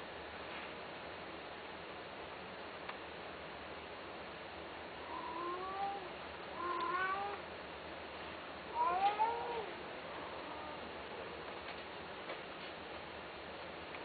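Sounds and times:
cat meowing: 5.1 - 7.4, 8.7 - 10.9.

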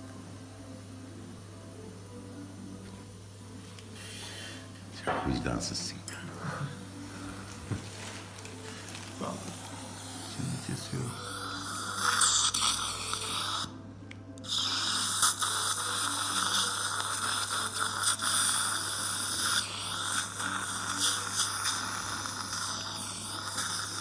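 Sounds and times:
steady low hum: 0.0 - 14.4
dental suction hissing and slurping: 9.2 - 13.8, 14.4 - 24.0.

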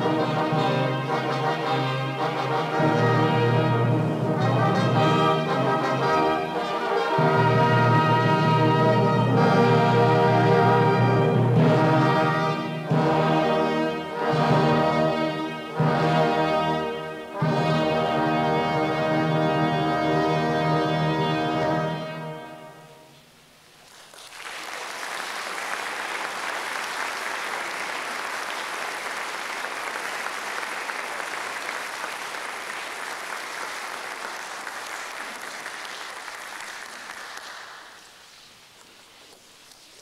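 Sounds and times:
brass fanfare chord: 0.0 - 23.1
audience applauding: 23.8 - 38.3.

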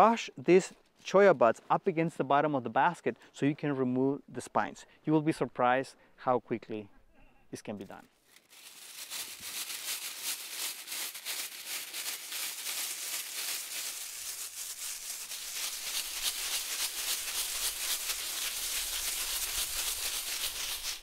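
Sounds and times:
hand broom scrubbing buds in basket: 8.3 - 21.0.

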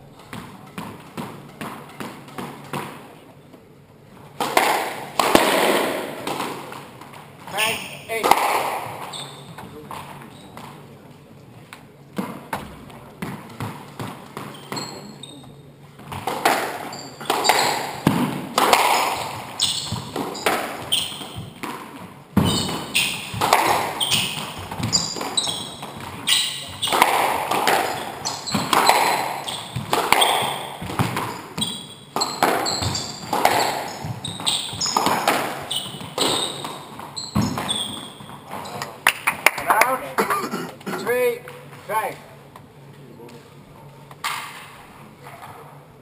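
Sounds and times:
squash ball hits echoing: 0.2 - 3.2, 4.3 - 10.8, 12.1 - 15.2, 16.0 - 40.0
shoes squeaking on wooden floor: 8.8 - 10.9, 13.6 - 39.0.

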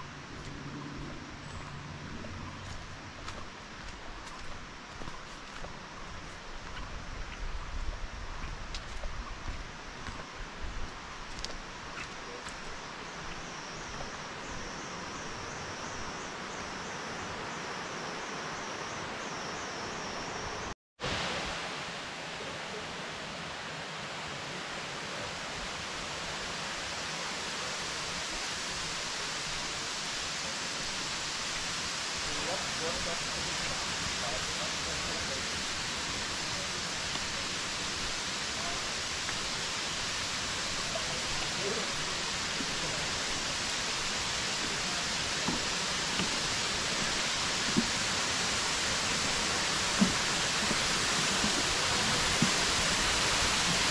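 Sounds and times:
loud steady hiss: 2.6 - 53.9
waterfall rushing: 19.9 - 53.9.

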